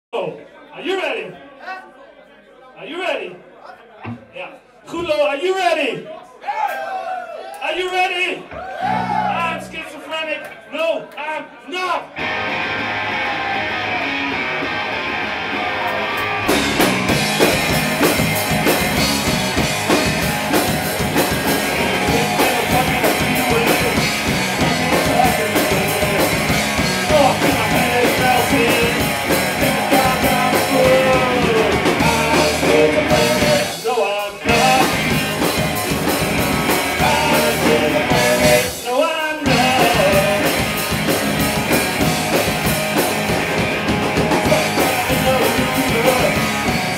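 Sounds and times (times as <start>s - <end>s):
rock band playing: 8.7s - 9.8s, 12.1s - 46.9s.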